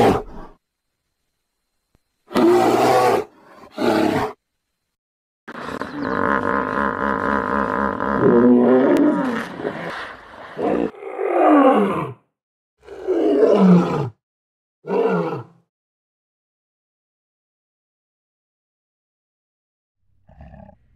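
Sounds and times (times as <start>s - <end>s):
hippopotamus calling: 5.5s - 10.6s.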